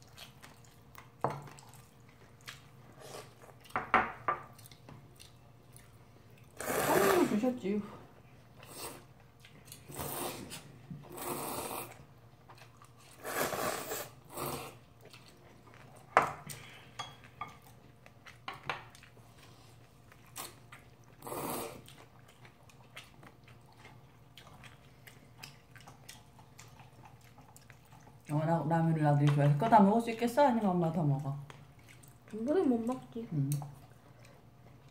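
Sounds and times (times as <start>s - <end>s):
chewing: 0.0s - 3.8s, 4.4s - 6.6s, 8.5s - 13.3s, 14.3s - 28.4s, 31.2s - 34.9s
noodles being slurped: 6.6s - 7.4s.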